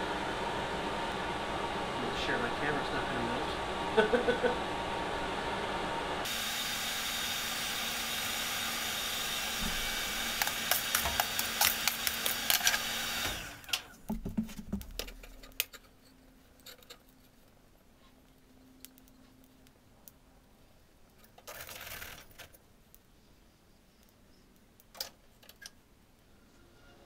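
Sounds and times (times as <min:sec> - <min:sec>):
forge blower rushing air: 0:00.0 - 0:13.9
coal clinking and clattering: 0:10.3 - 0:12.9.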